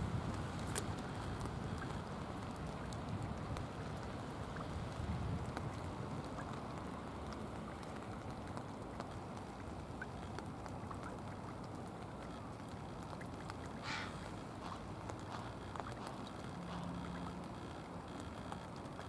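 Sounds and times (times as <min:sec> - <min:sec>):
outdoor background noise by water: 0:00.0 - 0:19.0
faint ticks: 0:00.2 - 0:19.0.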